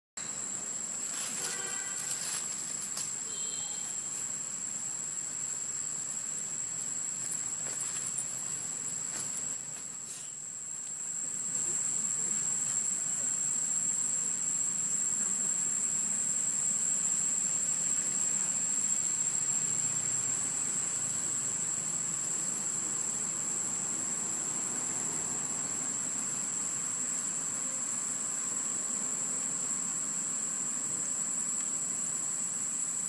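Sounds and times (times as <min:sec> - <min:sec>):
faint hiss: 0:00.2 - 0:33.0
insects droning: 0:00.2 - 0:33.0.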